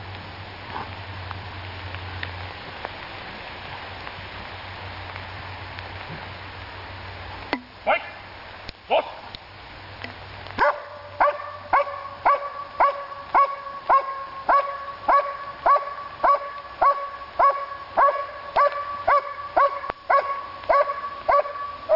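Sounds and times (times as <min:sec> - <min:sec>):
dog barking: 0:10.6 - 0:21.7.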